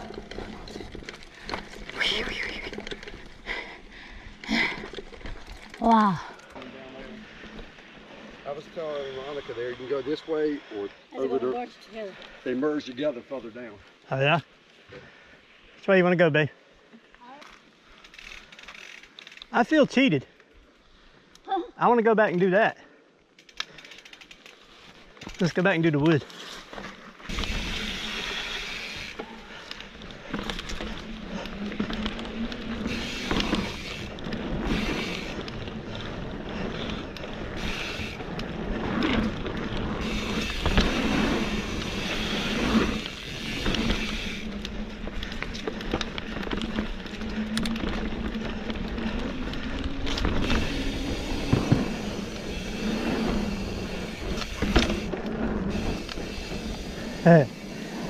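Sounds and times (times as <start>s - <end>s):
bike tyres rolling hum: 0.0s - 11.6s, 12.2s - 21.4s, 22.1s - 58.0s
bike knocking over planks: 50.0s - 52.4s, 53.9s - 55.2s.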